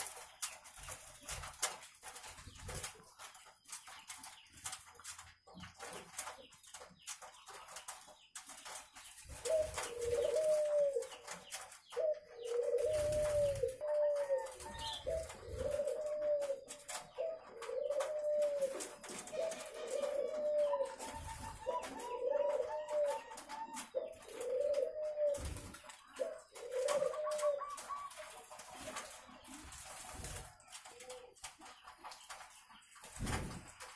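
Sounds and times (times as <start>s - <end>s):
doves cooing: 9.3s - 11.3s, 11.9s - 29.6s.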